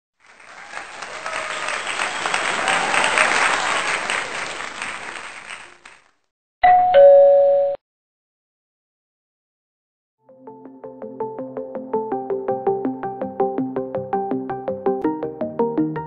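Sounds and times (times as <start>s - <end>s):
crowd applause: 0.2s - 6.2s
two-note chime: 6.6s - 7.8s.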